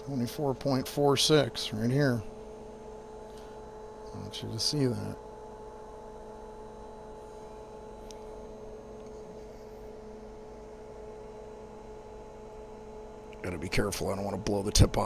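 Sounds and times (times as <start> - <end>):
low electrical hum: 0.0 - 15.0
mid-pitched electrical tone: 0.0 - 15.0.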